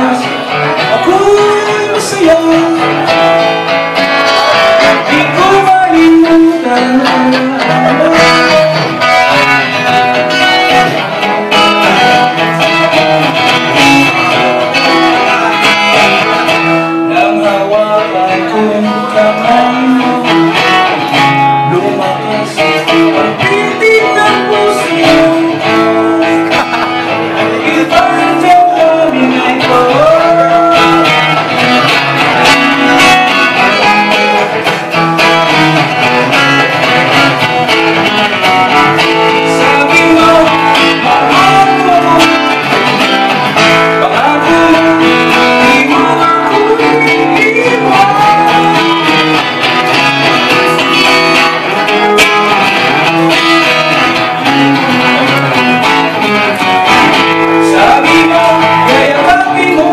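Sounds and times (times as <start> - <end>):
man singing a ballad: 0.0 - 3.5, 4.3 - 9.6, 14.8 - 26.6, 27.2 - 31.7, 38.9 - 43.0, 43.6 - 49.5, 57.3 - 59.9
acoustic guitar strumming: 0.0 - 59.9.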